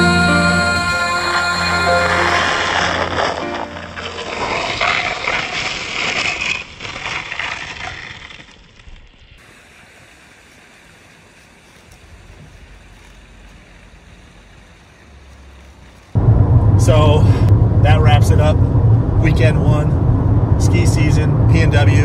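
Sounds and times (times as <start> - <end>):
skis hissing through snow: 1.6 - 16.2
faint outdoor hiss: 9.4 - 16.2.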